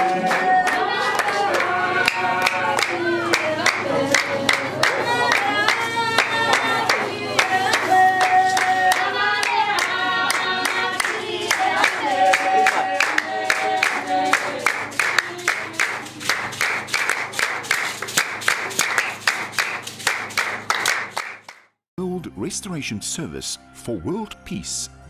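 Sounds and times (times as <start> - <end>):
women singing together: 0.0 - 16.2
hand-clapping: 0.0 - 21.7.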